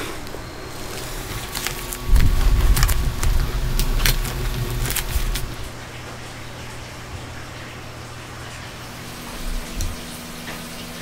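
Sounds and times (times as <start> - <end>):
drill rubbing and knocking: 0.0 - 5.7
plastic film crinkling and clicks: 0.2 - 5.7.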